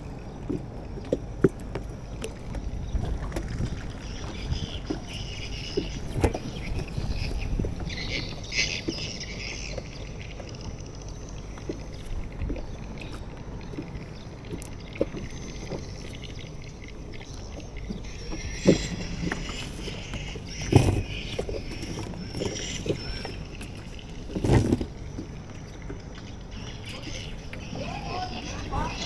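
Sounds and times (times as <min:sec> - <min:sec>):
wind rumble on microphone: 0:00.0 - 0:09.6
water around a boat: 0:00.0 - 0:29.0.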